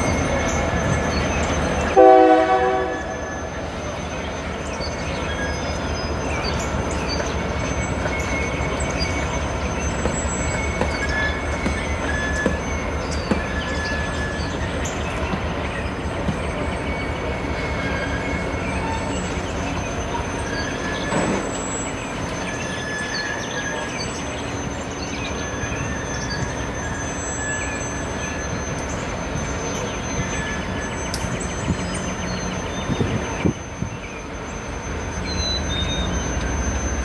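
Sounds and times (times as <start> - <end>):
high wheel squeals: 0.0 - 37.0
train cars rumbling on rails: 0.0 - 37.0.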